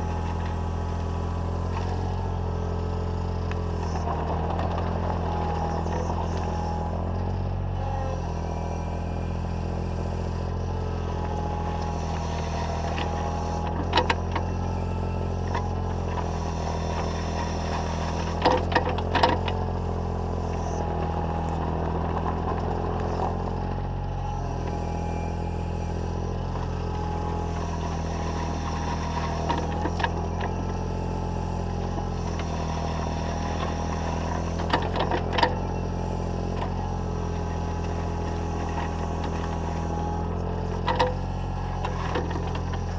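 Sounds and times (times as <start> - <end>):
excavator engine running: 0.0 - 42.9.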